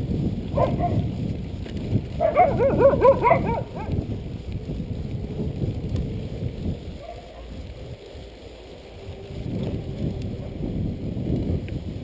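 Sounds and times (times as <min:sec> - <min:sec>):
bike riding on dirt road: 0:00.0 - 0:12.0
wind rumble: 0:00.0 - 0:12.0
dog barking: 0:00.6 - 0:01.0, 0:02.2 - 0:03.9, 0:07.0 - 0:07.5.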